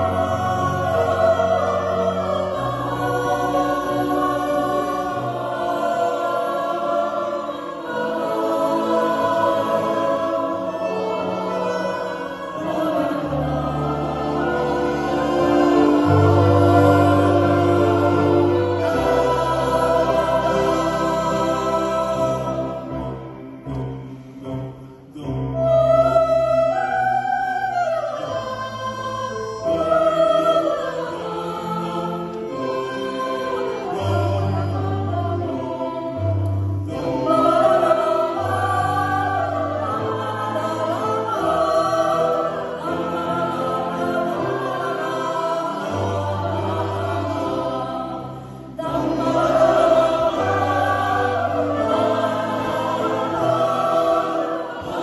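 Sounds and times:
bandoneon: 0:00.0 - 0:22.8
mixed choir singing: 0:00.0 - 0:55.0.

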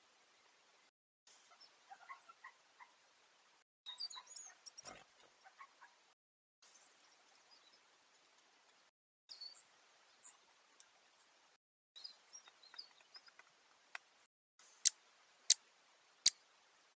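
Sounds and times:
high bird chirps: 0:03.9 - 0:04.8.

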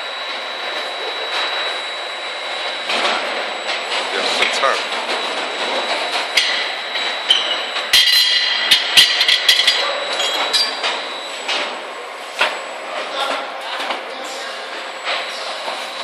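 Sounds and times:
steady machine noise: 0:00.0 - 0:16.0.

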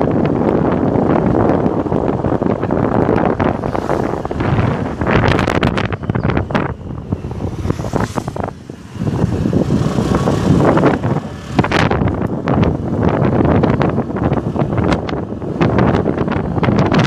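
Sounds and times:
rumble of moving motorbike: 0:00.0 - 0:17.0
wind buffeting microphone: 0:00.0 - 0:17.0.

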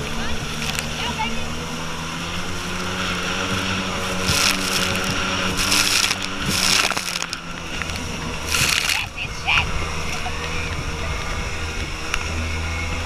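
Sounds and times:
jet boat engine running: 0:00.0 - 0:13.0
water spray hissing against hull: 0:00.1 - 0:10.4.

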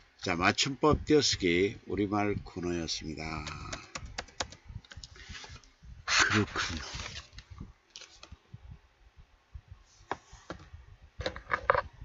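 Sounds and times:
computer keyboard keys tapping: 0:03.4 - 0:05.1.

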